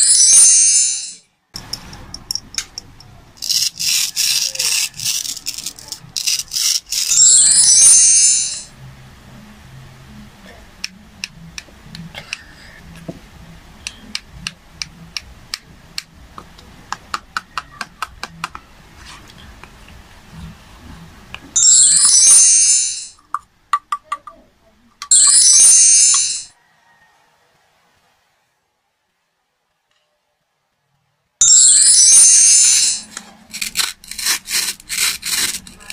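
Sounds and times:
sparkly chime sound effect: 0.0s - 1.2s, 7.1s - 8.7s, 21.6s - 23.2s, 25.1s - 26.5s, 31.4s - 33.1s
crayon clicking on plastic board: 13.9s - 18.7s.

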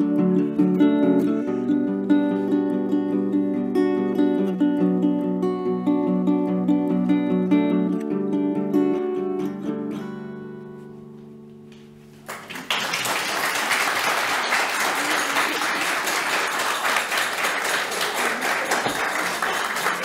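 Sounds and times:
acoustic guitar chord ringing: 0.0s - 12.2s
audience applause: 12.2s - 20.0s.

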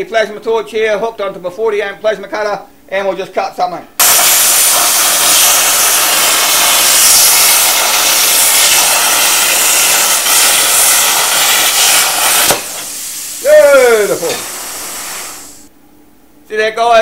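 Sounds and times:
plasma cutter arc hissing: 4.0s - 15.7s.

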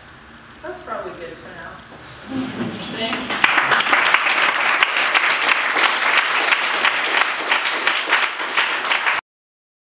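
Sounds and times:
audience applauding: 3.0s - 9.2s.

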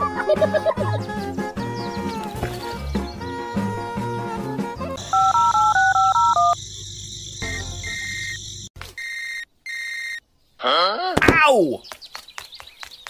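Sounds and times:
background music: 0.0s - 5.3s
steady electronic tone: 5.0s - 8.7s
touch-tone keypad beeps: 5.1s - 6.6s.

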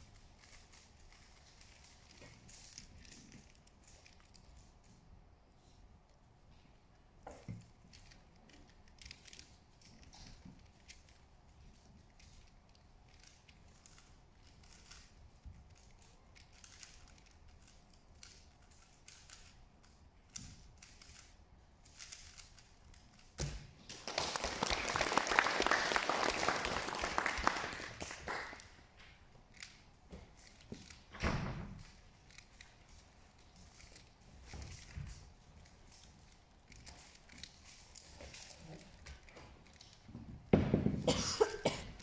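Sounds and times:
puzzle cube clicking: 15.7s - 23.3s
audience applauding: 23.9s - 28.7s.

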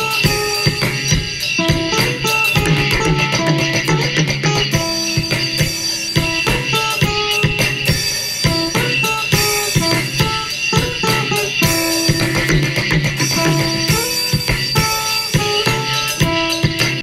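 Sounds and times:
drums steady beat: 0.0s - 17.0s
stepping melodic notes: 0.0s - 17.0s.

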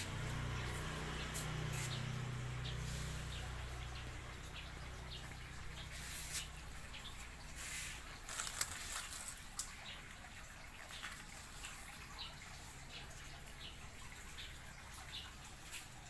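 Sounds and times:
clicks and rustles: 8.1s - 9.8s.

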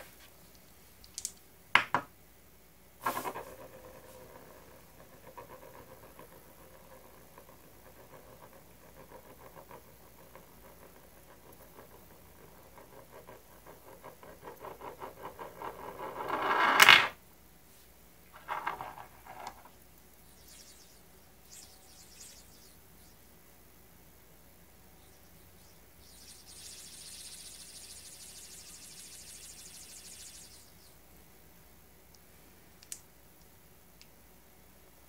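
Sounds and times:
metal spinning top rattling: 3.0s - 16.9s, 18.4s - 19.7s, 26.0s - 30.7s.

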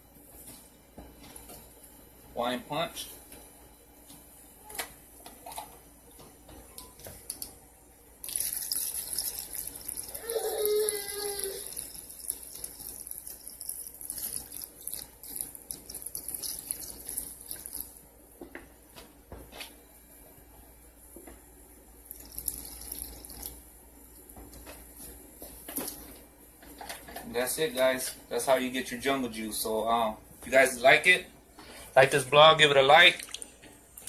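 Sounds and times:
liquid splashing pour: 8.2s - 10.1s, 11.6s - 17.9s, 22.1s - 23.6s.

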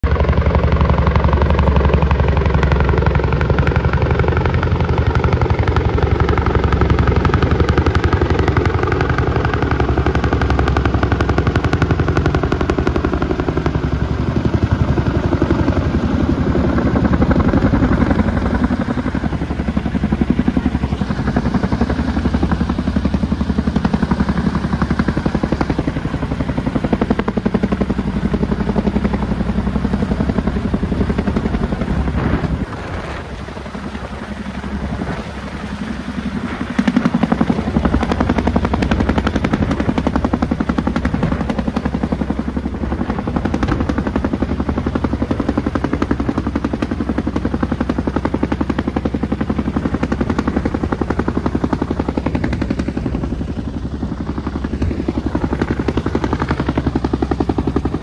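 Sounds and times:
helicopter rotors chopping: 0.0s - 58.0s
low engine drone: 0.0s - 58.0s.

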